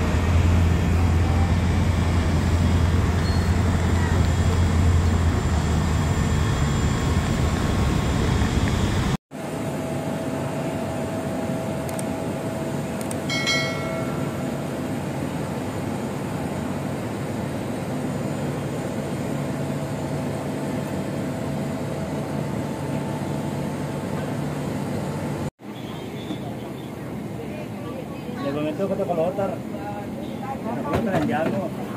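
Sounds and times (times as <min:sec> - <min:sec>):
jet airliner droning: 0:00.0 - 0:25.5.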